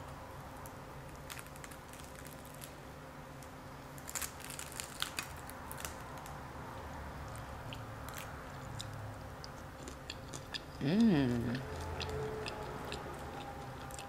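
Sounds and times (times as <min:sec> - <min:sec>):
crackling crunches of eating: 0:00.6 - 0:02.8, 0:03.4 - 0:06.5, 0:07.2 - 0:14.0
soft chewing: 0:07.2 - 0:14.0.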